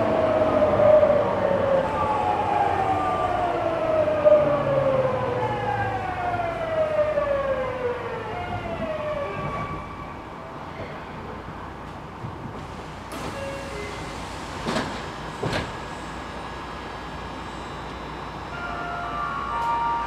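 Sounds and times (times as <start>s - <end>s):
train inverter whine: 0.0s - 10.5s, 12.6s - 20.0s
rumble of running train: 0.0s - 20.0s.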